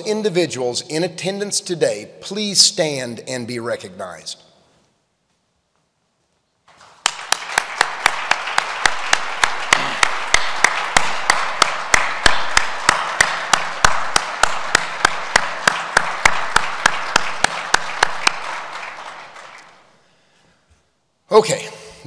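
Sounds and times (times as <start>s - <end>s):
sharp close hand claps: 6.7s - 19.9s
audience applauding: 6.7s - 20.0s.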